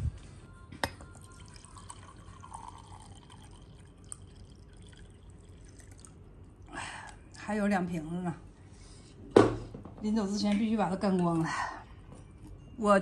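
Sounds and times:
wine pouring into glass: 1.1s - 6.2s.

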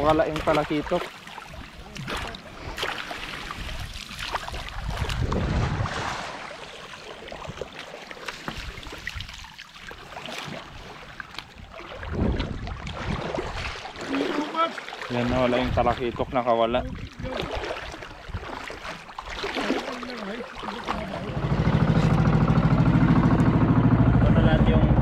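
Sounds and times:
water splashing around boat: 0.0s - 25.0s
wind on microphone: 4.6s - 6.2s, 12.0s - 13.8s.

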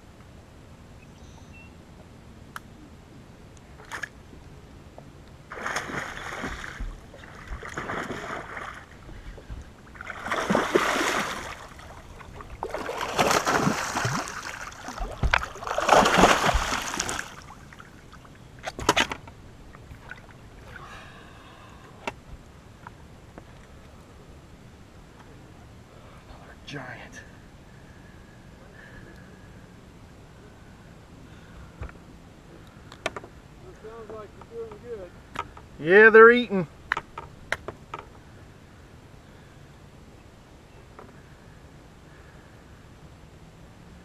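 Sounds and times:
fish splashing at water surface: 5.5s - 8.9s, 10.0s - 17.9s.

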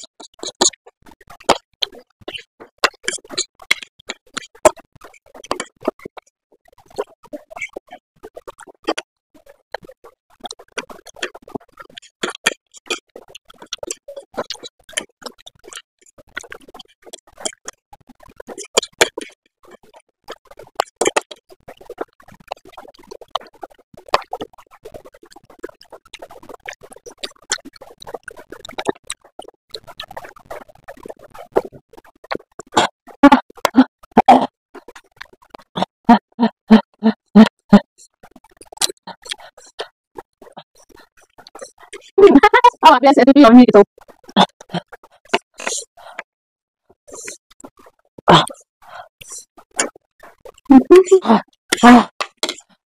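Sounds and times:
chewing smacks: 0.0s - 6.2s, 6.8s - 35.9s, 38.0s - 42.2s, 49.2s - 50.9s
wet slurping of noodles: 0.0s - 42.3s, 43.9s - 46.3s, 47.1s - 52.7s.

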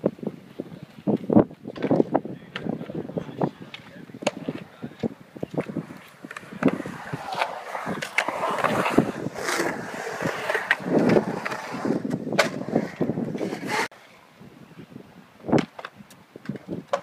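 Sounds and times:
skateboard wheels rolling on concrete: 0.0s - 17.0s
skateboard clacks and knocks: 3.7s - 13.9s, 15.6s - 17.0s.

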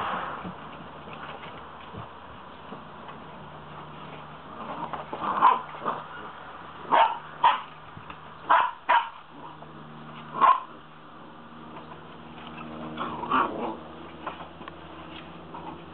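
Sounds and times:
puppies barking: 4.4s - 11.0s, 11.8s - 15.9s.

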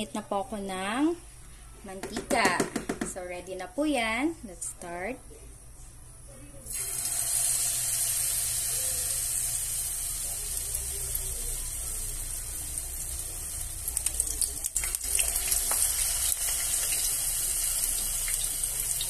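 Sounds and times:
batter deep-frying in hot oil: 6.7s - 19.0s.

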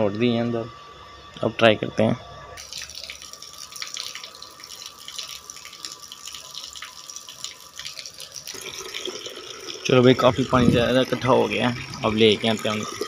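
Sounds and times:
water splashing into concrete basin: 2.6s - 13.0s.

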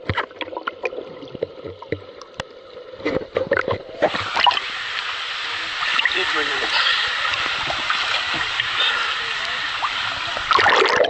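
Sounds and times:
underwater clicks and bubbles: 0.0s - 5.1s
muffled underwater swimming: 0.0s - 11.0s
water splashing: 0.0s - 11.0s.

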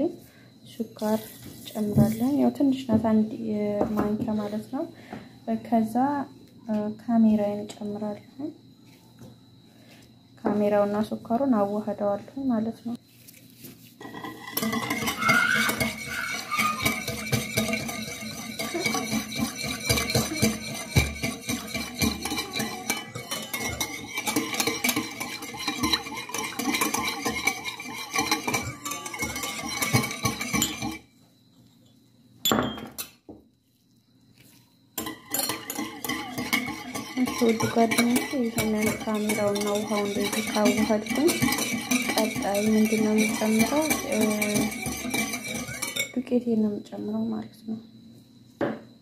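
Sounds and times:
wire whisk rattling in glass bowl: 14.0s - 31.1s, 35.0s - 46.2s.

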